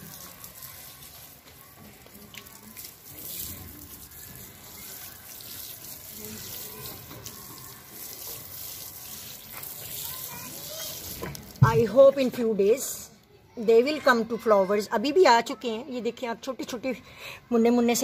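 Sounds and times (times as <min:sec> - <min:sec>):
water splashing onto soil: 0:00.0 - 0:12.0.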